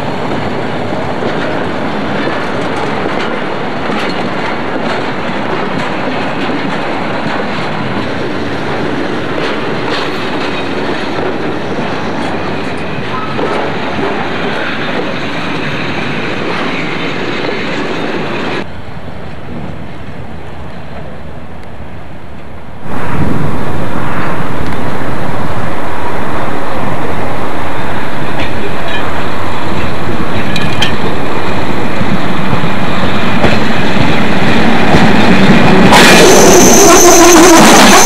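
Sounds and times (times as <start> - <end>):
rumble of freight wagons: 0.0 - 38.0
train wheels clacking over rail joints: 1.1 - 18.3, 29.8 - 31.5.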